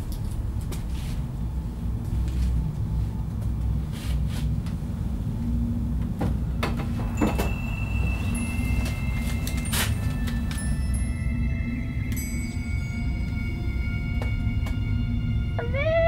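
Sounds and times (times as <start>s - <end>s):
steady low rumble: 0.0s - 16.0s
things knocking about: 6.2s - 10.8s
thin high tones: 7.0s - 15.4s.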